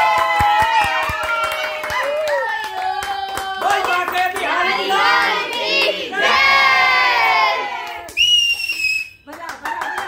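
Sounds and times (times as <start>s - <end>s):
people cheering and shouting: 0.0s - 2.5s
short high whistle-like tone: 8.2s - 9.2s.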